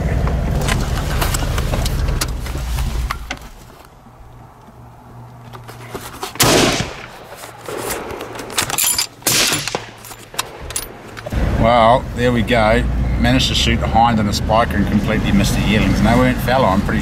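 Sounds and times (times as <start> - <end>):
truck engine humming: 0.0 - 17.0
rifle shot: 6.4 - 8.5, 9.2 - 11.0.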